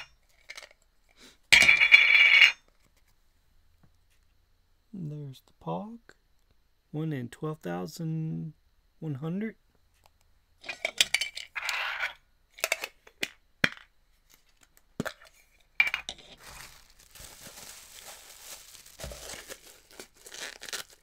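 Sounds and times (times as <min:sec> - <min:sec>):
plastic bag crinkling: 0:16.2 - 0:21.0.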